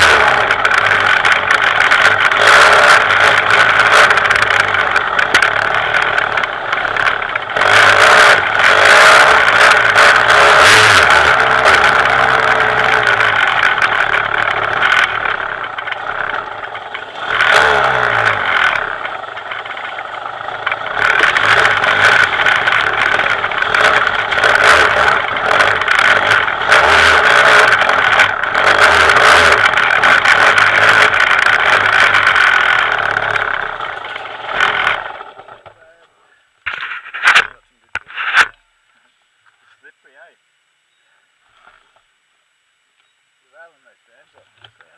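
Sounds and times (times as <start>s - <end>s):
two-stroke motorcycle engine revving: 0.0s - 35.8s.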